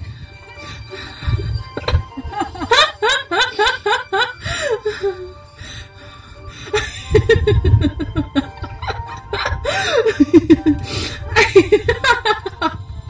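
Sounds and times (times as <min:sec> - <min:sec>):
music: 0:00.0 - 0:13.0
woman laughing: 0:01.8 - 0:05.2, 0:06.7 - 0:12.8.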